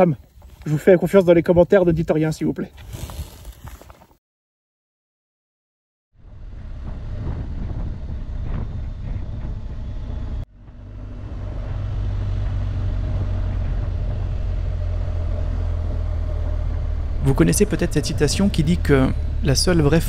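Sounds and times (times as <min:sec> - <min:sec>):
motorcycle engine running: 0:06.2 - 0:20.0
wind noise: 0:06.2 - 0:20.0.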